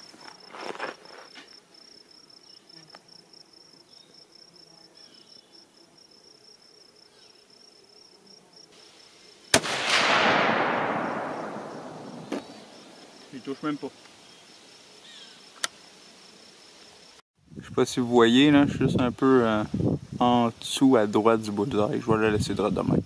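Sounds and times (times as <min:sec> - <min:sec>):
rustling: 0:00.0 - 0:01.7
insects chirping: 0:00.0 - 0:17.6
rifle shot: 0:09.5 - 0:13.1.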